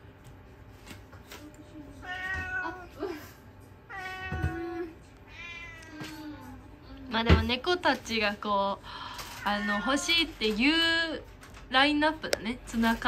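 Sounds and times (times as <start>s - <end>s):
cat meowing: 2.0s - 2.9s, 3.9s - 6.2s, 9.4s - 10.3s.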